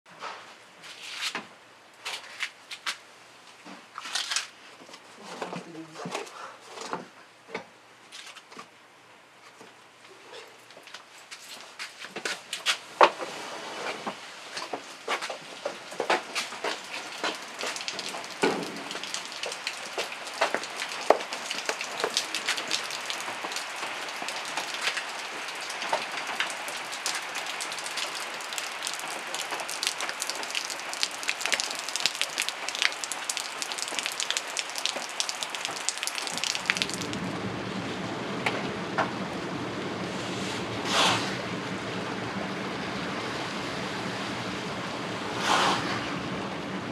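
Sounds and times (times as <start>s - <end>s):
rain pattering: 12.6s - 40.8s, 41.4s - 45.4s
low rushing noise: 36.6s - 46.9s.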